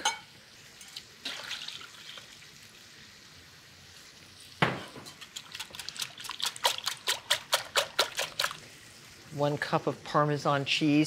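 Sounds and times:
milk splashing into bowl: 0:01.2 - 0:02.4, 0:04.6 - 0:08.6.

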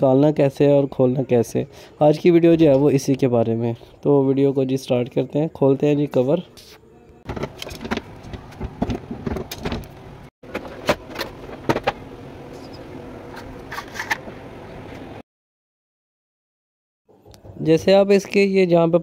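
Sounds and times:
steady background hum: 0:06.3 - 0:15.2
copier parts clicking and rattling: 0:07.3 - 0:09.9.

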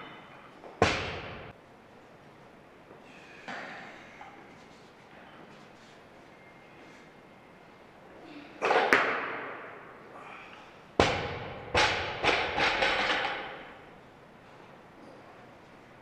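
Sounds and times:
barbell bouncing with rattling plates: 0:11.0 - 0:13.7
barbell crashing on platform: 0:11.0 - 0:13.7.

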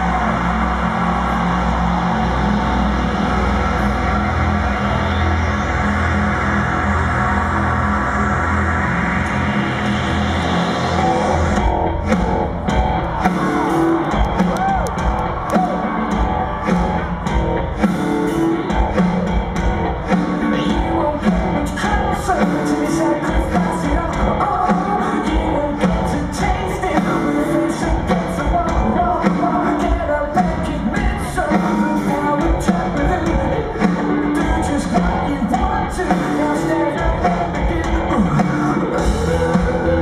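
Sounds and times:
bass guitar: 0:00.0 - 0:40.0
drum kit: 0:10.2 - 0:40.0
person singing: 0:20.1 - 0:40.0.

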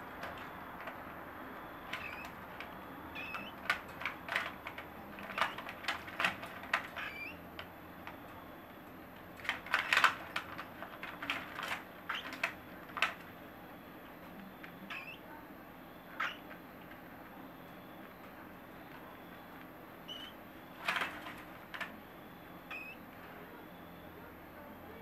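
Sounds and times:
birds clicking on wire cage bars: 0:01.9 - 0:07.7, 0:09.4 - 0:13.2
soft bird chirps: 0:20.0 - 0:20.4.

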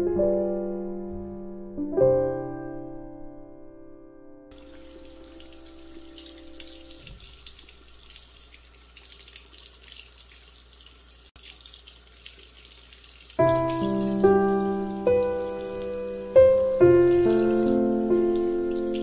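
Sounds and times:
piano music: 0:00.0 - 0:07.0, 0:13.4 - 0:19.0
tap water running into sink: 0:04.5 - 0:19.0.

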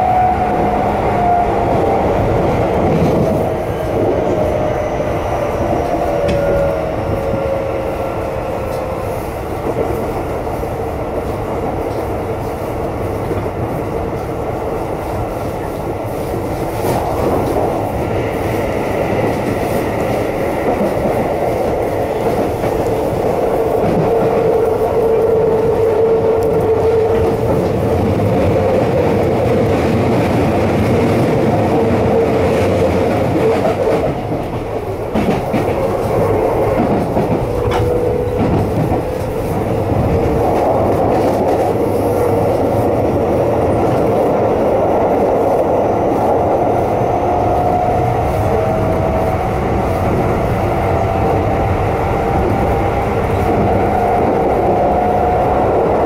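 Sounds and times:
wheels clattering on rails: 0:15.0 - 0:56.0.

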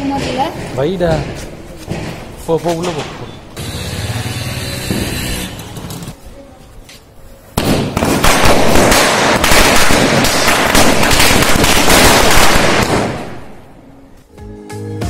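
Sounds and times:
firecrackers cracking: 0:07.5 - 0:13.8.

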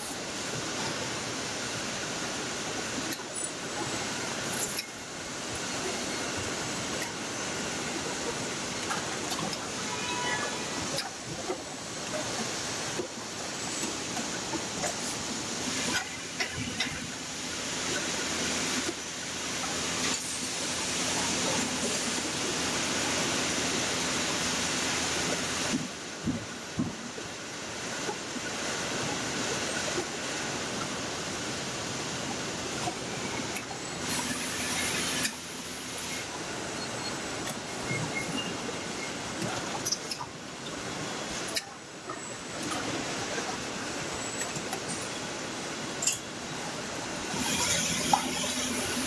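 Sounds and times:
machinery hiss and hum: 0:00.0 - 0:49.0.

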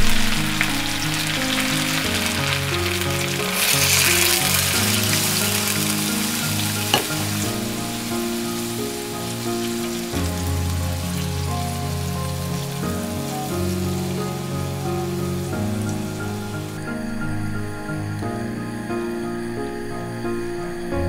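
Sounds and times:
soft background music: 0:00.0 - 0:21.0
food sizzling in a pan: 0:00.2 - 0:16.8.

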